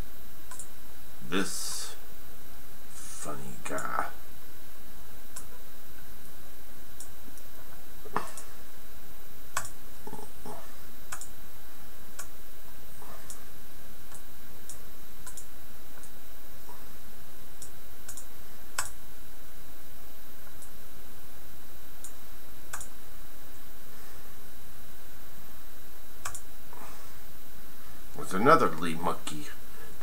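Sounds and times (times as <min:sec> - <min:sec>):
low electrical hum: 0:00.0 - 0:30.0
computer mouse clicking: 0:00.5 - 0:00.7, 0:09.6 - 0:09.8, 0:11.1 - 0:11.3, 0:14.1 - 0:16.1, 0:17.6 - 0:19.0, 0:22.0 - 0:22.9, 0:26.2 - 0:26.5.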